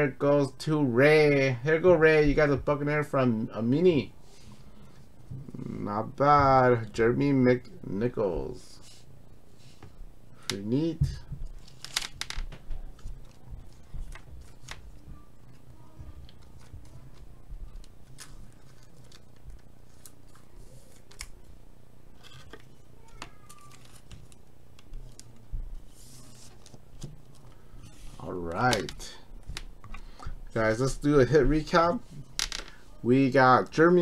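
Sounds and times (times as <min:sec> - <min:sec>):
low steady hum: 0:00.0 - 0:34.0
trading card plastic rustles: 0:11.5 - 0:21.5, 0:22.2 - 0:30.2.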